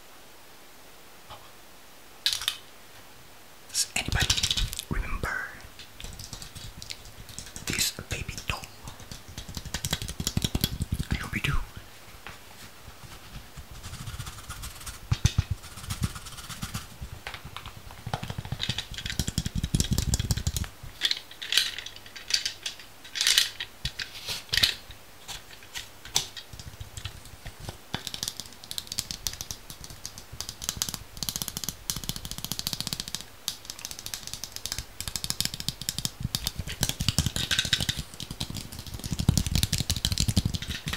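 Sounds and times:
mouth sounds: 3.7 - 5.7, 7.6 - 9.1, 10.8 - 11.9
crisp clicks taps and crackles: 4.0 - 11.6, 13.3 - 40.9.

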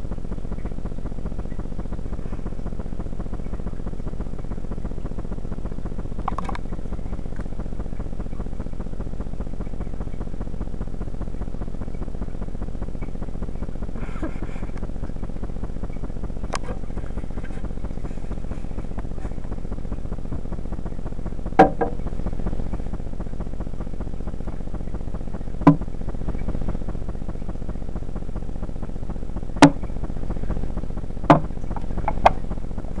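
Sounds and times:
low hum: 0.0 - 33.0
sharp knocks: 21.6 - 22.0, 25.6 - 25.9, 29.6 - 29.9, 31.3 - 31.5.

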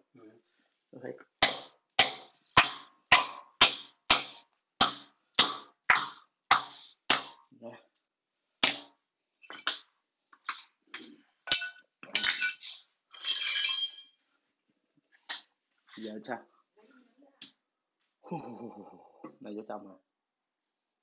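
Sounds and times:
hammer striking floor: 1.4 - 7.4, 8.6 - 8.9, 9.5 - 9.9.

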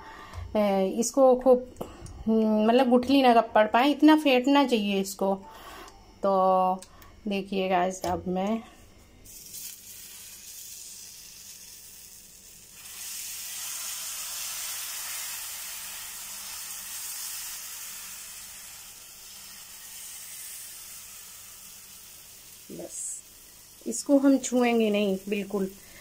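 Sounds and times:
batter sizzling on a griddle: 9.3 - 26.0.

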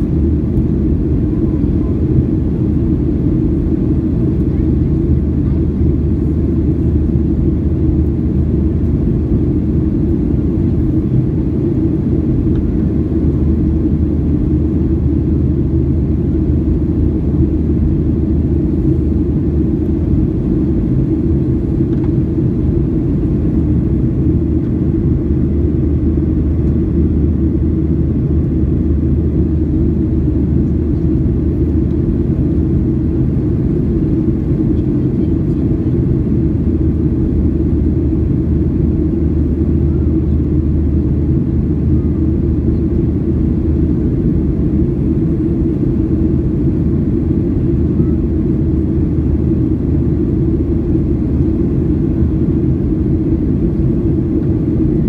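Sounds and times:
jet engine rumble in cabin: 0.0 - 55.0.

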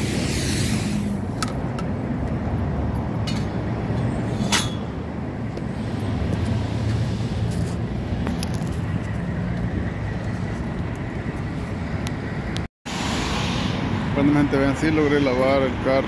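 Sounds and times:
high-pressure water spray hissing: 0.0 - 1.2, 12.9 - 14.0.

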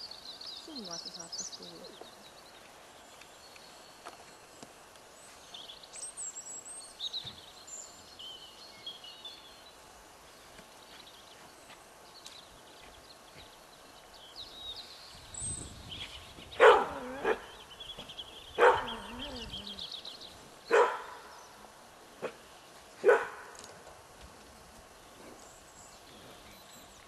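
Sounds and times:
small birds chirping faintly: 0.0 - 27.0
dog barking: 16.6 - 17.6, 18.6 - 19.4, 20.7 - 21.3, 22.2 - 22.4, 23.0 - 23.5.

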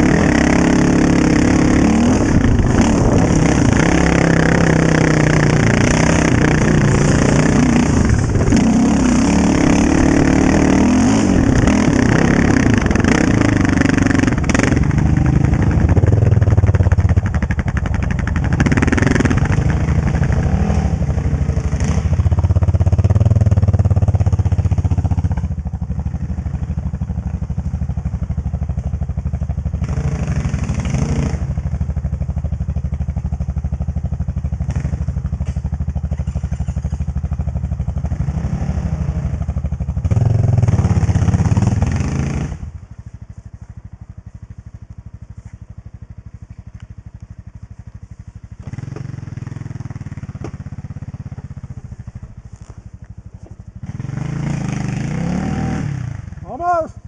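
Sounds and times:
quad engine revving: 0.0 - 42.9, 48.6 - 52.8, 53.4 - 57.0.

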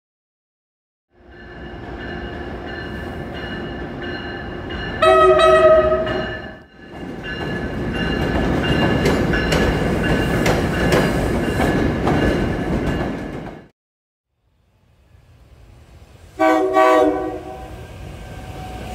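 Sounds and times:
train humming and whining: 1.1 - 13.7, 14.6 - 18.9
train horn blast: 5.0 - 6.2, 16.4 - 18.9
train wheels clicking over rails: 6.9 - 13.7.

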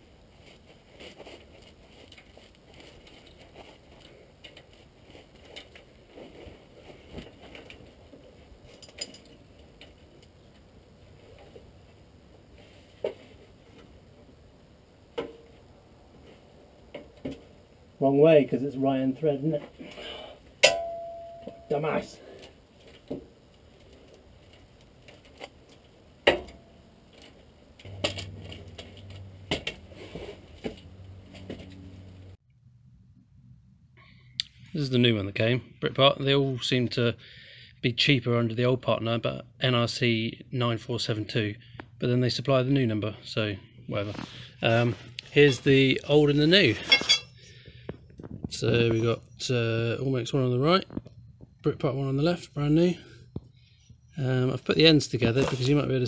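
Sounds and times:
steady low hum: 0.0 - 36.4
metal rod set on concrete: 46.8 - 47.3
hand tools clinking on steel: 46.8 - 47.4.

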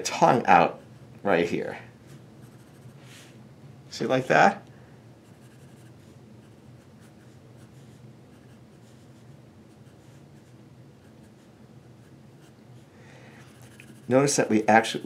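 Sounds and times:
pencil scratching on paper: 2.4 - 3.0, 5.2 - 12.9, 13.5 - 15.0.

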